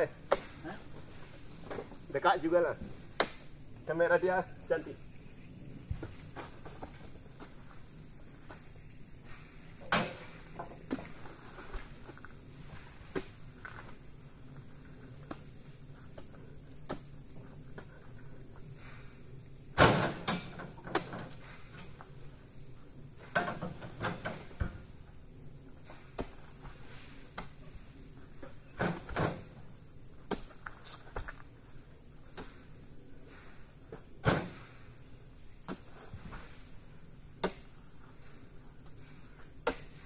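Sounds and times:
high insect buzz: 0.0 - 40.0
sharp knocks and thuds: 37.4 - 37.7.

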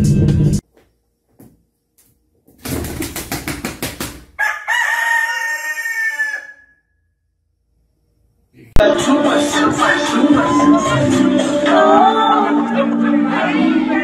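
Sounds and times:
rapid short beats: 2.6 - 4.4
rooster crowing: 4.4 - 7.1.

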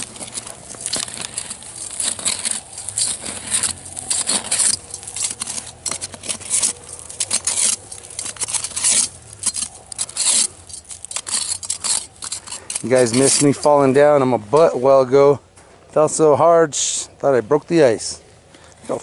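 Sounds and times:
metal skimmer clinking: 0.0 - 13.5
ice crunching: 0.0 - 14.9.

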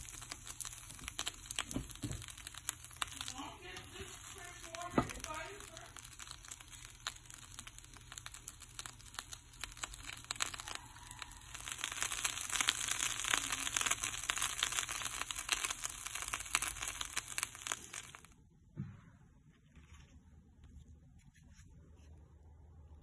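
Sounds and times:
bread sizzling in oil: 0.0 - 18.4.

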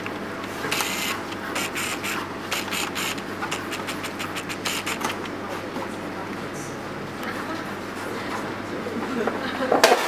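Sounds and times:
drawing tool scratching on paper: 1.6 - 5.1.

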